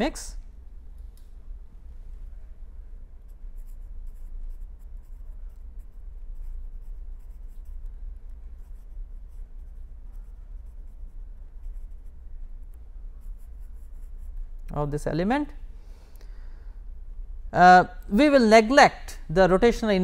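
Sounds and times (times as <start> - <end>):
steady low hum: 0.0 - 20.0
pen scratching on paper: 3.3 - 7.9, 8.6 - 12.2, 13.2 - 14.4.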